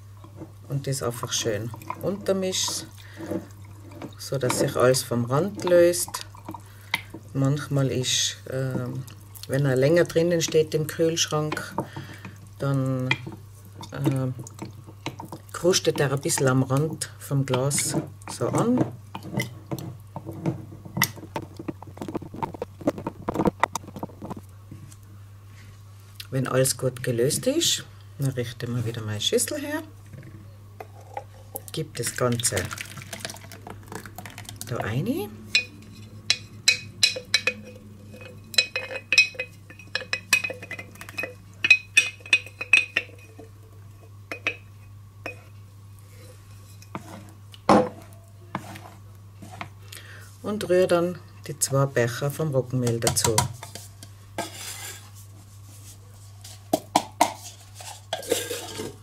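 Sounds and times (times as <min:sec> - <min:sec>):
spoon tapping in a bowl: 0:35.5 - 0:43.4
wooden spoon scraping glass jar: 0:45.3 - 0:49.8, 0:53.6 - 0:55.2.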